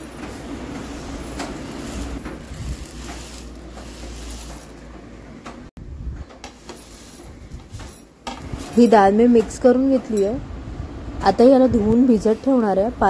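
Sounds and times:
dry lentils rustling and scraping: 0:00.0 - 0:04.9, 0:06.4 - 0:09.0.

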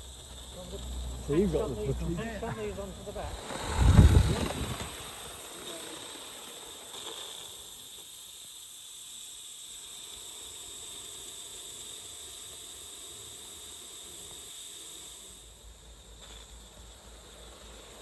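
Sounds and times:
steam locomotive hissing: 0:00.0 - 0:18.0.

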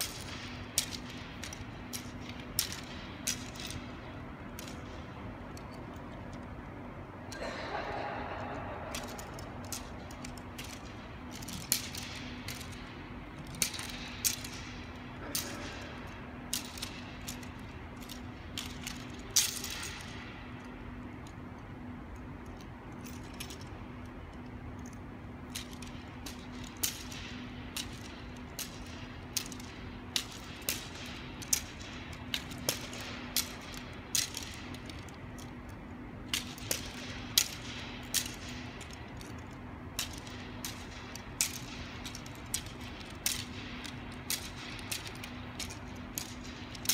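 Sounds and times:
practice weapon clicks and knocks: 0:00.0 - 0:46.9
steady low hum: 0:00.0 - 0:46.9.

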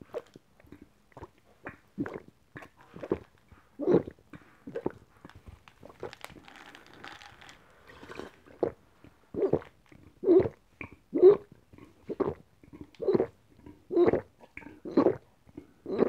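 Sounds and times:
person gulping a drink: 0:00.0 - 0:16.0
crackling and clicking ice: 0:05.3 - 0:08.2.

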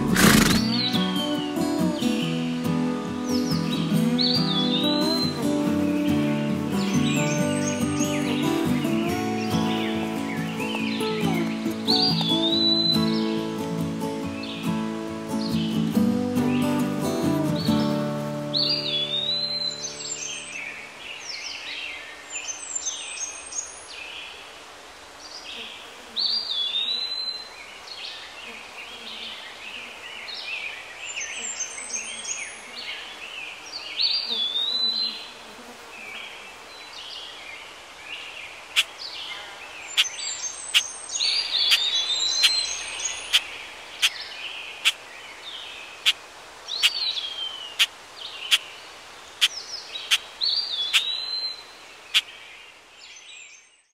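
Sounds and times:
birds chirping and calling: 0:00.0 - 0:14.7, 0:38.8 - 0:48.8, 0:49.4 - 0:52.4.

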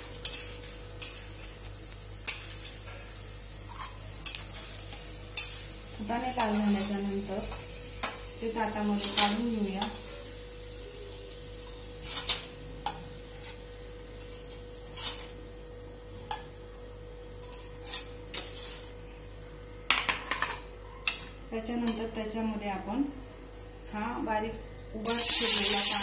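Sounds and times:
metal spoon scraping iron pan: 0:06.4 - 0:07.0, 0:14.2 - 0:15.3, 0:17.4 - 0:18.9.

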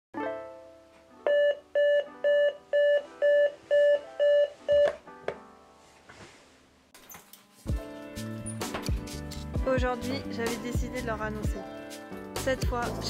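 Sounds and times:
soft background music: 0:00.2 - 0:13.0
alarm clock beeping: 0:01.3 - 0:04.9.

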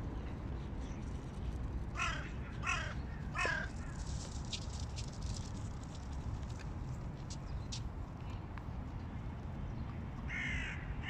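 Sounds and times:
crows cawing: 0:02.0 - 0:04.0, 0:10.3 - 0:11.0.

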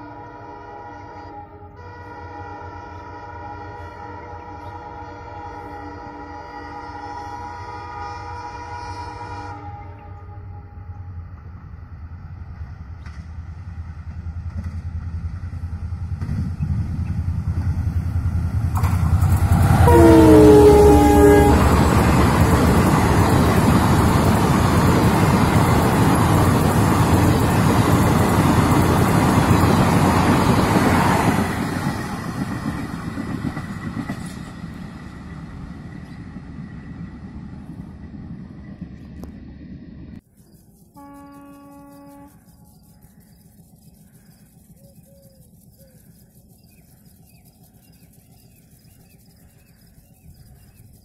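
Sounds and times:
train horn blast: 0:00.0 - 0:11.2, 0:19.6 - 0:22.6, 0:40.9 - 0:42.4
diesel locomotive engine rumble: 0:00.0 - 0:51.0.

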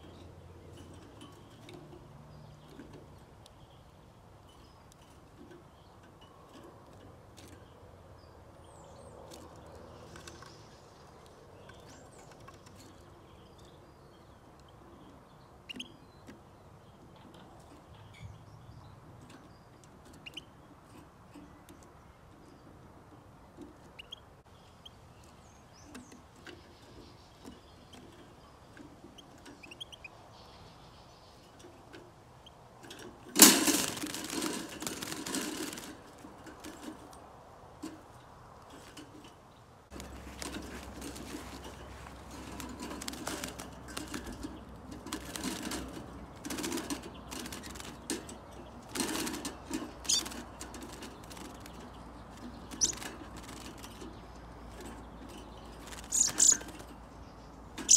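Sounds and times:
finches chirping: 0:23.9 - 0:32.7, 0:49.9 - 0:57.9
wings flapping against wire: 0:32.8 - 0:57.9.

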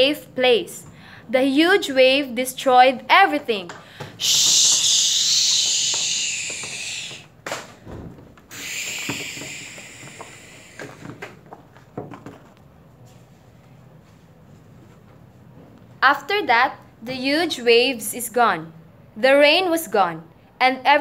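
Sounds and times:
paper props tapping and rustling: 0:07.4 - 0:13.8.

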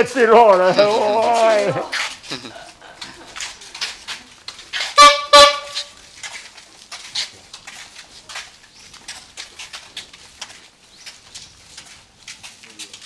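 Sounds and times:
vehicle horn toots: 0:04.9 - 0:06.0.

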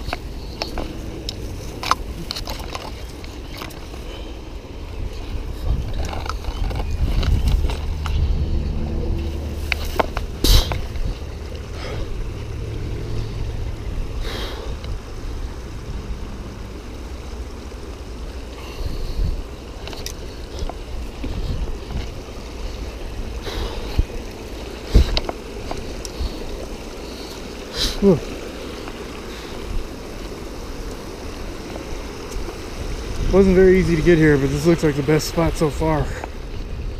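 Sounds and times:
footsteps on rocks: 0:00.0 - 0:04.1, 0:05.3 - 0:08.4, 0:09.2 - 0:11.9, 0:19.5 - 0:27.5
wind rumble on microphone: 0:00.0 - 0:27.6, 0:28.3 - 0:36.9
stream rushing over rocks: 0:00.0 - 0:36.9.

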